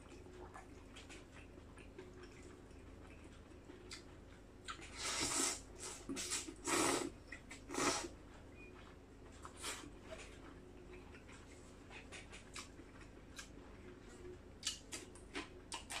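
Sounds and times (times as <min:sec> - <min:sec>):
person slurping noodles: 0:04.9 - 0:07.1, 0:07.7 - 0:08.1.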